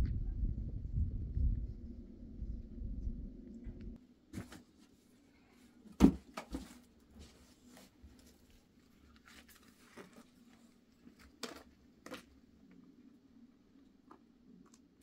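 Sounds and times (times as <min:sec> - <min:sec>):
faint low hum: 0:00.0 - 0:04.5
rustling: 0:06.4 - 0:12.8.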